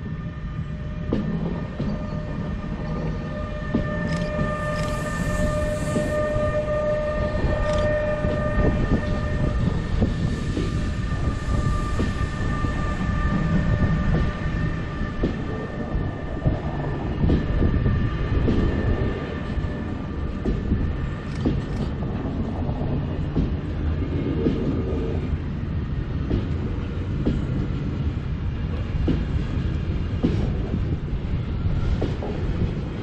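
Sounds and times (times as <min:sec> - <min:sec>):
train wheels rumbling: 0:00.0 - 0:33.0.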